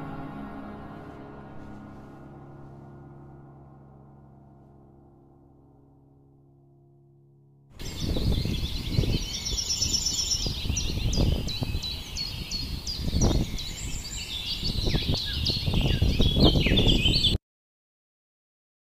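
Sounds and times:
low outdoor rumble: 0.0s - 7.2s
small birds chirping: 7.8s - 17.4s.

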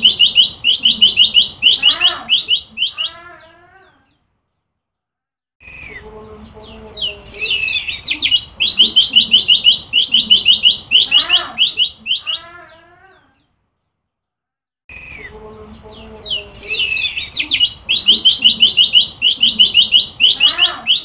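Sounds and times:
bird singing rapid high notes: 0.0s - 3.2s, 6.8s - 12.5s, 16.0s - 21.0s.

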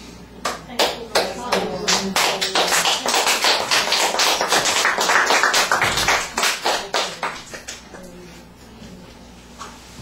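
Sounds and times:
group hand clapping: 0.4s - 8.0s.

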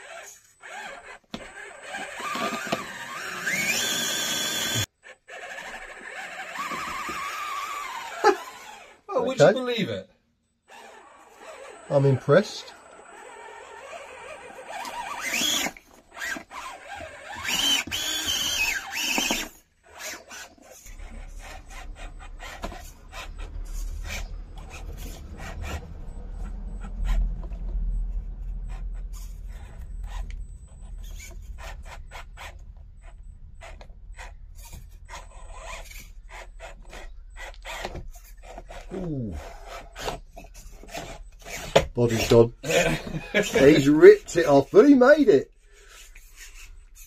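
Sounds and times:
tyres scraping on rocks: 0.0s - 9.0s, 10.7s - 47.0s
electric motor and gears whining: 0.0s - 9.8s, 10.6s - 47.0s
low rumble: 20.9s - 36.2s.

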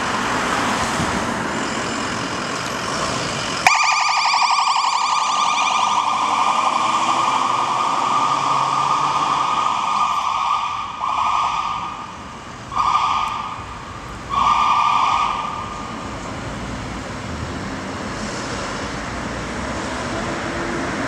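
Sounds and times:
city traffic hum: 0.0s - 21.0s
emergency siren blasts: 3.6s - 16.0s.

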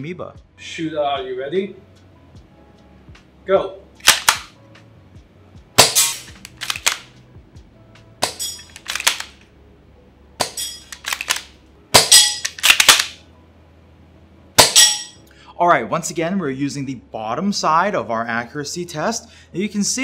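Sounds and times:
rifle bolt clacking: 4.0s - 4.5s, 5.8s - 7.1s, 8.2s - 9.4s, 10.4s - 13.2s
airsoft rifle shots: 4.0s - 4.6s, 5.8s - 7.1s, 8.2s - 9.4s, 10.4s - 13.2s, 14.6s - 15.1s.

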